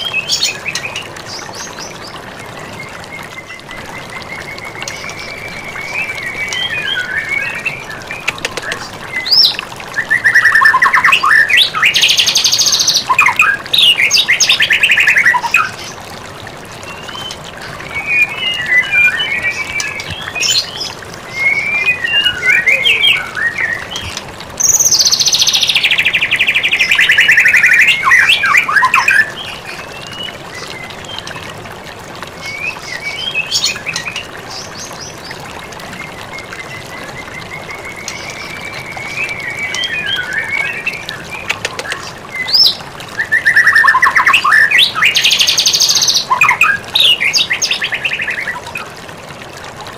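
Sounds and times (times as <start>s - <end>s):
bird singing whistled trills: 21.3s - 23.9s.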